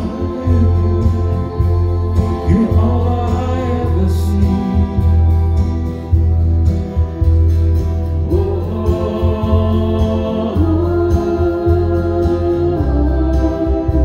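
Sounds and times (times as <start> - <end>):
person singing long notes: 0.0 - 5.2, 8.3 - 14.0
acoustic guitar: 0.0 - 14.0
heavy bass: 0.0 - 14.0.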